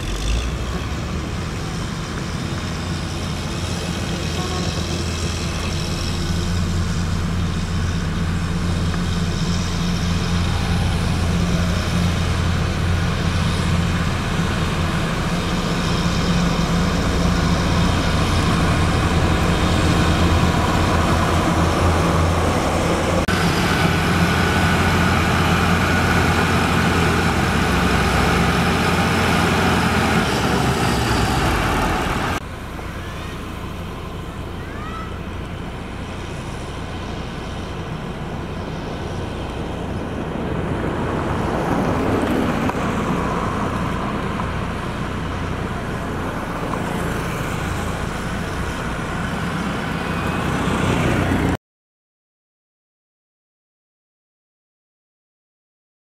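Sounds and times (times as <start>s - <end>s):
diesel paving machinery running: 0.0s - 51.6s.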